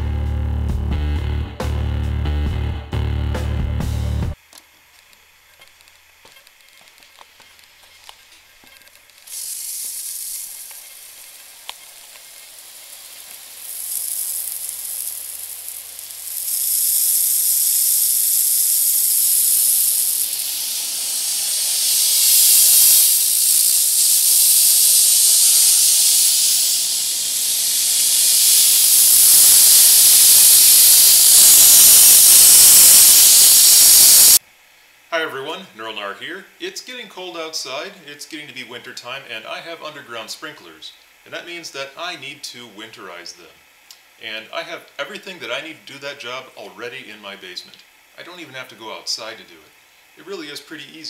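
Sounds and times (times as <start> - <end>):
sprinkler heads hissing: 9.1 - 34.4.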